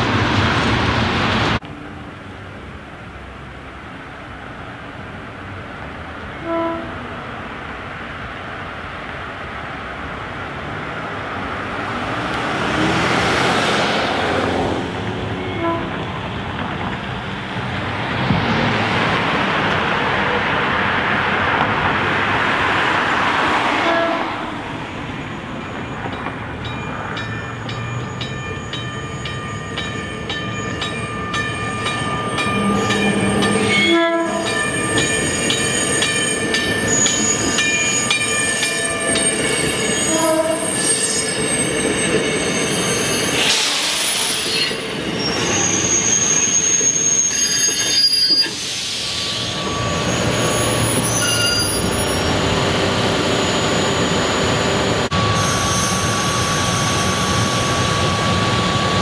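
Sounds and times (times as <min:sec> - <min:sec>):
train horn notes: 0:06.4 - 0:07.0, 0:15.4 - 0:16.0, 0:23.8 - 0:24.4, 0:33.8 - 0:34.6, 0:40.0 - 0:40.7
wheels squealing on rails: 0:23.3 - 0:59.0.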